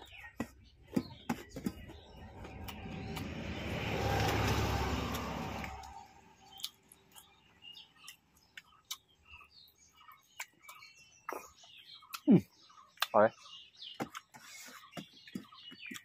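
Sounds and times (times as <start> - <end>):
chewing clicks: 5.1 - 13.2.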